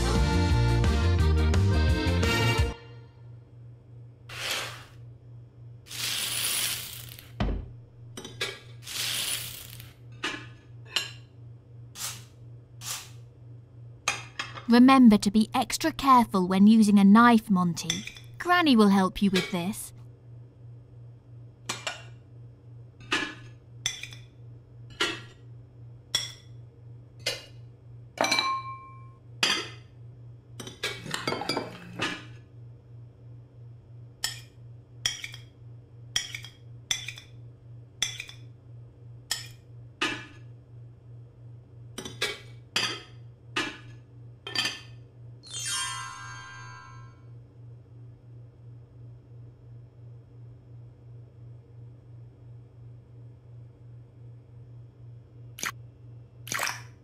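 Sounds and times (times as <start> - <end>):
faint steady hum: 10.0 - 45.4.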